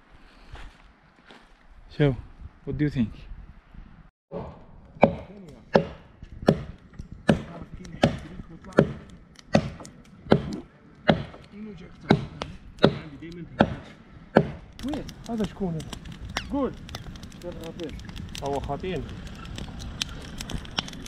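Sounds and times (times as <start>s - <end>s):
steady chopping: 4.4s - 16.2s.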